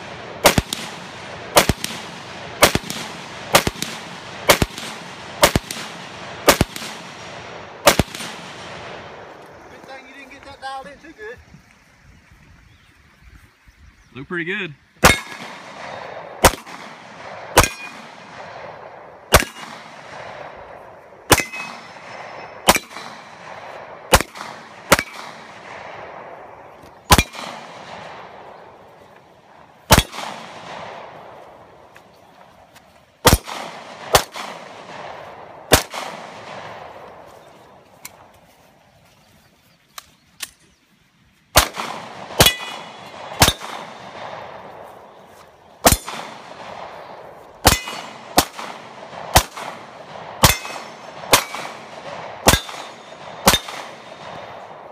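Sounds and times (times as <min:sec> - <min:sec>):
handgun shots: 0:16.4 - 0:18.1, 0:19.3 - 0:19.9, 0:21.3 - 0:22.0, 0:22.6 - 0:23.3, 0:24.1 - 0:25.6, 0:27.1 - 0:27.8, 0:41.6 - 0:44.1, 0:47.6 - 0:49.8, 0:50.4 - 0:54.4
bullets clanging on steel targets: 0:17.6 - 0:18.0, 0:21.3 - 0:23.2, 0:42.4 - 0:43.7, 0:47.7 - 0:48.2, 0:50.4 - 0:51.6, 0:52.5 - 0:53.8.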